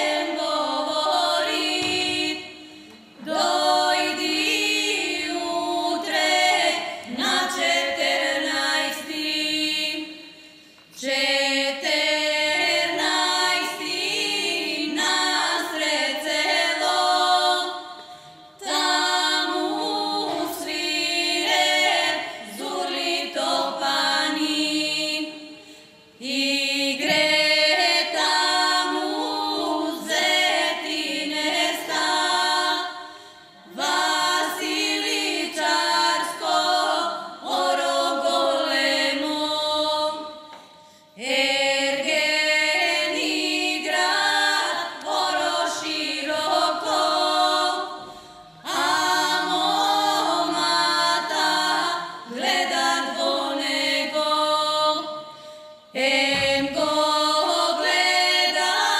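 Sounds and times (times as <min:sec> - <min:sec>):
women singing in harmony: 0:00.0 - 0:58.9.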